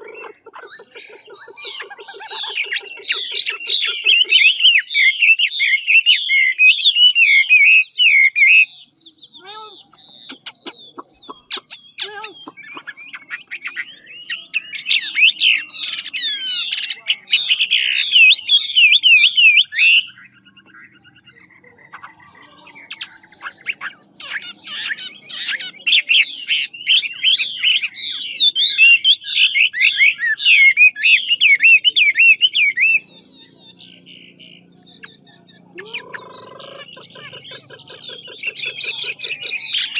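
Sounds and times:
bird singing whistled notes: 0.8 - 22.1, 22.8 - 36.5.

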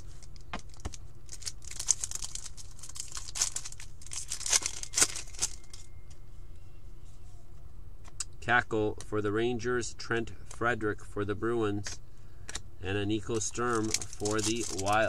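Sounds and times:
card pack wrapper tearing: 0.0 - 5.9, 13.3 - 15.0
wrapper crinkling: 0.0 - 5.9, 13.4 - 15.0.

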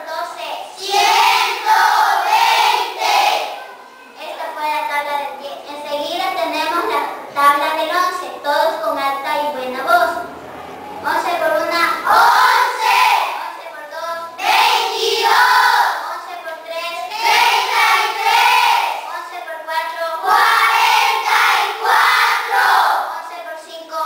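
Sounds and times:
children chanting in unison: 0.4 - 4.1, 11.7 - 13.6, 14.4 - 16.0, 17.1 - 19.1, 20.2 - 23.1.

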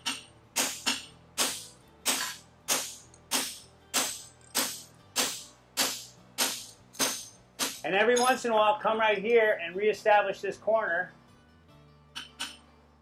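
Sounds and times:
hammer striking metal on anvil: 0.0 - 8.5.

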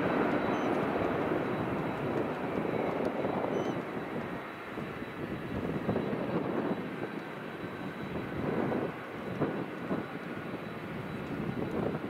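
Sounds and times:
jet engines rumbling: 0.0 - 12.0.

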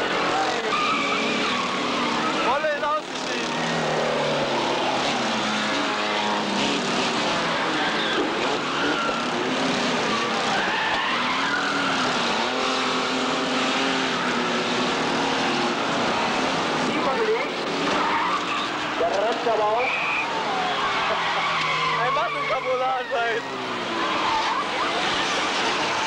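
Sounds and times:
car engines revving: 0.0 - 26.0
tyres skidding on dirt: 0.0 - 26.0.

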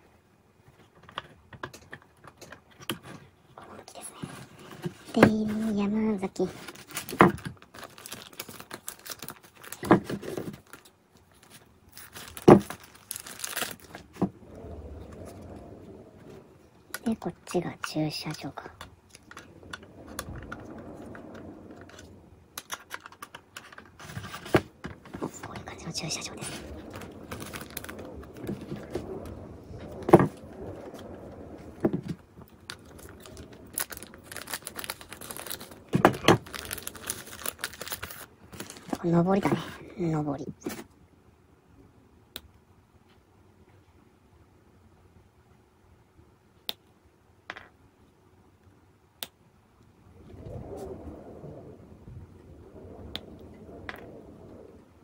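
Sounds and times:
plastic parts clicking and rustling: 0.7 - 3.3, 6.4 - 14.3, 17.8 - 29.0, 31.8 - 39.7
plastic parts clicking and knocking: 0.8 - 3.2, 12.0 - 14.3, 22.6 - 25.7
plastic packaging crinkling: 4.0 - 15.6, 17.0 - 39.8.

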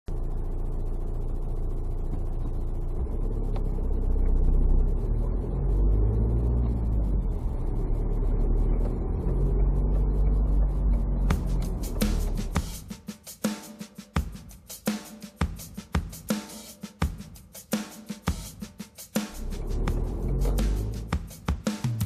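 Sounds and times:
car engine and road rumble: 0.1 - 12.8, 19.3 - 21.3
music with a steady beat: 6.2 - 22.0.

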